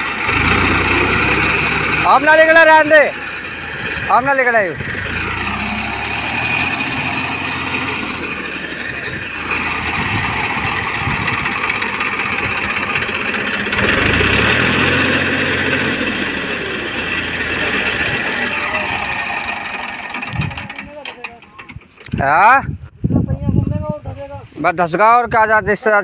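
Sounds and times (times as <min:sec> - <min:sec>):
wheels churning muddy water: 0:00.0 - 0:03.9, 0:04.9 - 0:21.6
tractor diesel engine under load: 0:00.0 - 0:22.6.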